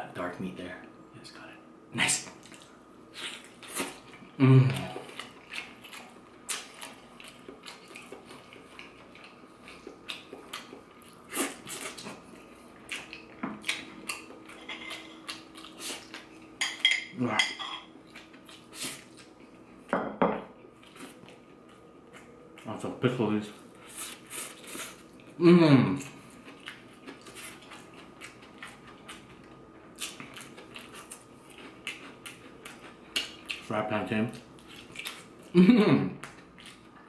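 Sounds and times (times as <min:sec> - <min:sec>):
chewing and lip-smacking: 0:02.2 - 0:16.5, 0:26.1 - 0:33.7, 0:34.3 - 0:35.5, 0:36.2 - 0:37.0.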